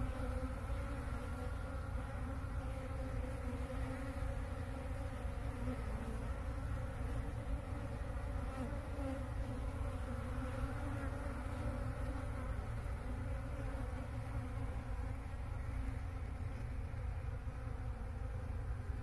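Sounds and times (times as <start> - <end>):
bees buzzing: 0.0 - 19.0.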